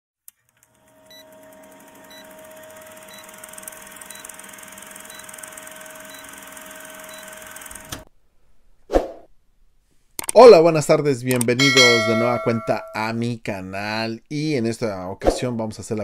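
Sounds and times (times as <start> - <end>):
film projector whirring rattle: 0.3 - 8.1.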